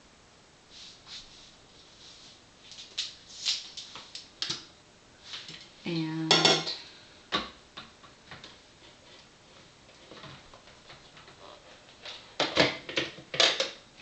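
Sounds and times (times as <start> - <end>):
lab gear clattering on a countertop: 6.3 - 6.8, 12.4 - 13.8.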